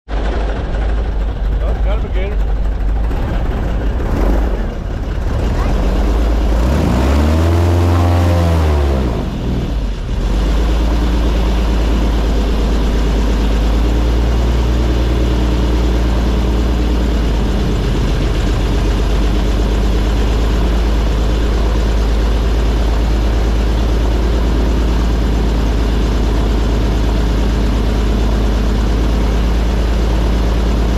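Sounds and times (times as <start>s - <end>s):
airboat engine and propeller: 0.1s - 30.9s.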